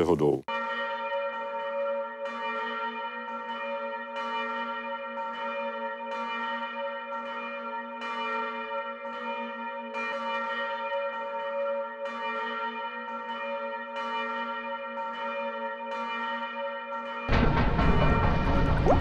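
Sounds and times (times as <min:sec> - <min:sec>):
large bells tolling: 0:17.1 - 0:19.0.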